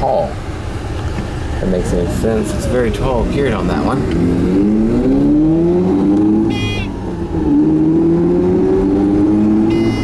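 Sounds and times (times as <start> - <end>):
rotary engine revving: 2.9 - 10.0
warning buzzer beeping: 6.5 - 7.0, 9.7 - 10.0.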